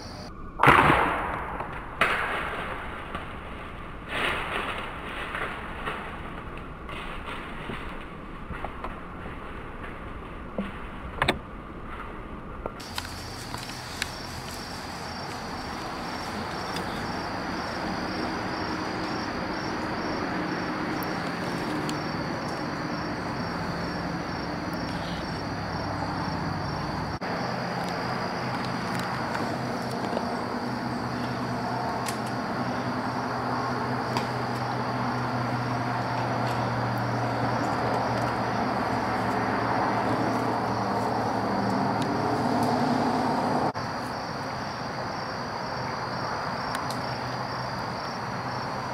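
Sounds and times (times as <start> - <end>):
crickets and insects trilling: 0.0 - 0.7, 12.8 - 48.9
low engine-like drone: 0.0 - 48.9.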